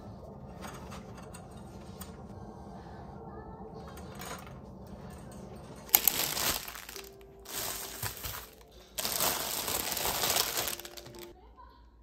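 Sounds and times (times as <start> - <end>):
soft background music: 0.0 - 12.0
plastic packaging crinkling: 5.9 - 11.3.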